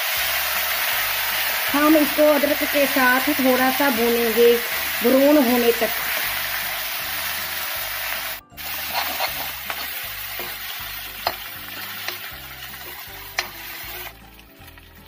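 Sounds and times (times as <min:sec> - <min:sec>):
ginger and garlic sizzling in oil: 0:00.0 - 0:15.0
spatula scraping a pan: 0:08.6 - 0:14.2.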